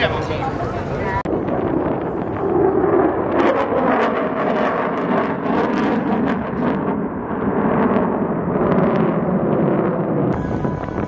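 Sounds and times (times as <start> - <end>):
fighter jet flying overhead: 0.0 - 11.0.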